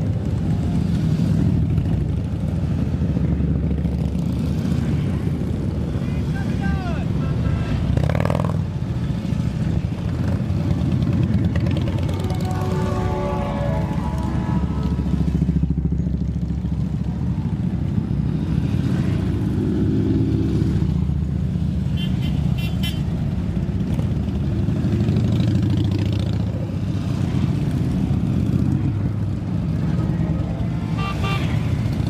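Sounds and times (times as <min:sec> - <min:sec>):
motorcycles rumbling past: 0:00.0 - 0:32.0
horn beeping: 0:11.9 - 0:15.2, 0:30.9 - 0:31.8.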